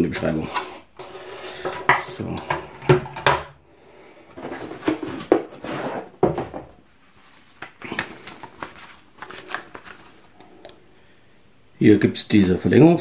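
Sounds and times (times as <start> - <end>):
paper and cardboard rustling: 4.3 - 10.3.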